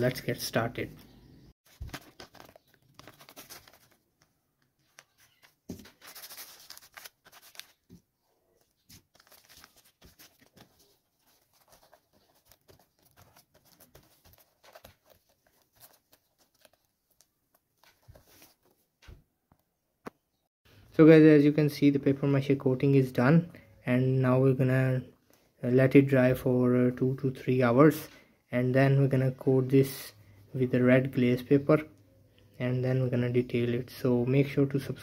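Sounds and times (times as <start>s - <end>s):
paper crinkling: 1.7s - 18.9s.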